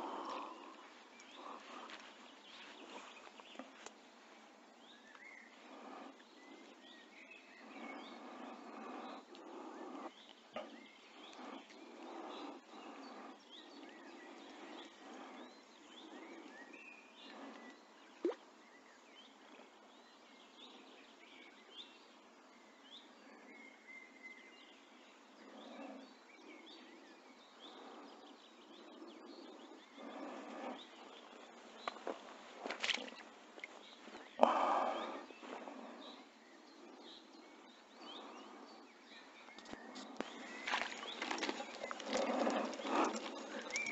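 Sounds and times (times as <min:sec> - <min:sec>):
rustling of plants: 0:00.0 - 0:05.0, 0:31.0 - 0:34.4, 0:39.6 - 0:43.9
faint birdsong chirps: 0:00.0 - 0:43.9.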